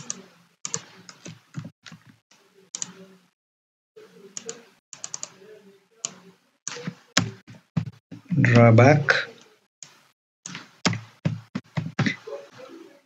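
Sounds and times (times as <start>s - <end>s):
computer keyboard typing: 0.0s - 1.7s, 4.4s - 5.4s.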